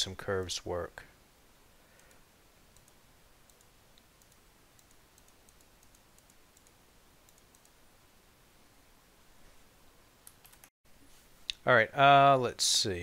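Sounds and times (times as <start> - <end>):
computer mouse clicks: 1.9 - 7.8, 10.2 - 10.7.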